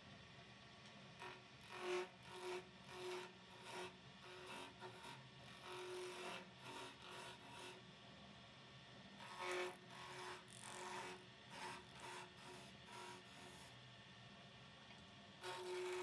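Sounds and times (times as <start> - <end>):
tool scraping wood on lathe: 1.2 - 7.8, 9.2 - 13.8, 15.4 - 16.0
lathe humming: 15.4 - 16.0.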